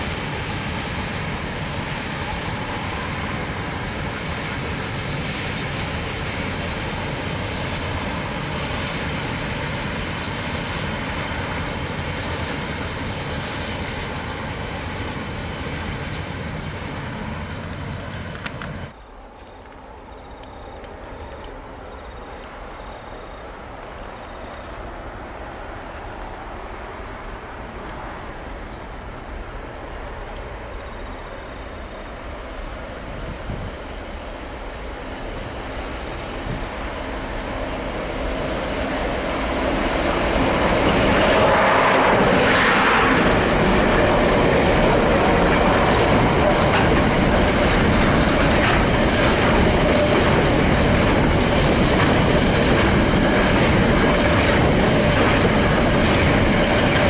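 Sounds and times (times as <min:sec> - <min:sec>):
train wagons rolling on track: 0:00.0 - 0:57.0
high-pitched hiss: 0:18.1 - 0:52.3.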